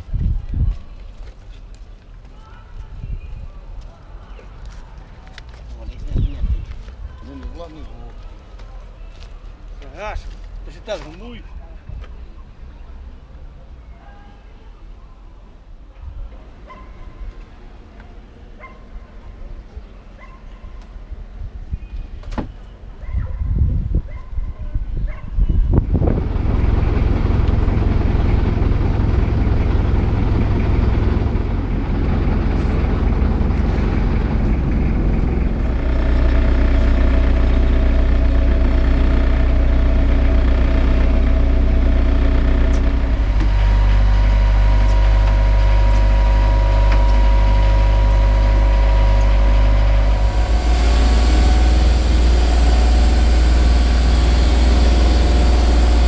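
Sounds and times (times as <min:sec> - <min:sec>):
boat engine running: 0:26.1 - 0:56.0.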